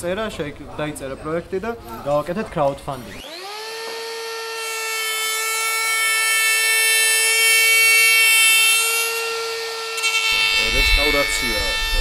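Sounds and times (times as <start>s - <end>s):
wood router high whine: 3.0s - 12.0s.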